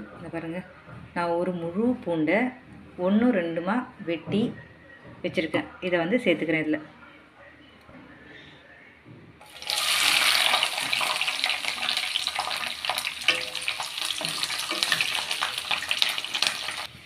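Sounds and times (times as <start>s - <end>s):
oil crackling and popping: 9.4s - 16.9s
garlic sizzling in hot oil: 9.4s - 17.0s.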